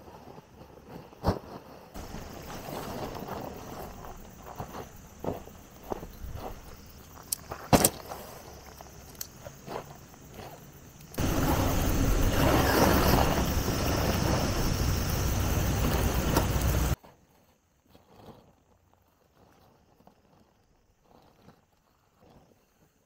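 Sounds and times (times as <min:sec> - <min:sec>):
tent gear rustling: 0:00.0 - 0:23.0
footsteps on dry grass: 0:02.0 - 0:17.0
wind buffeting microphone: 0:11.2 - 0:17.0.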